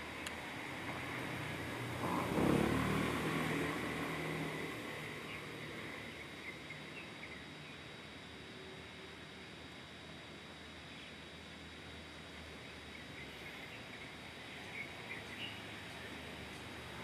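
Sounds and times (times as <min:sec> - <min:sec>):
motor vehicle passing by: 0:00.0 - 0:06.2
thin constant high tone: 0:03.1 - 0:17.0.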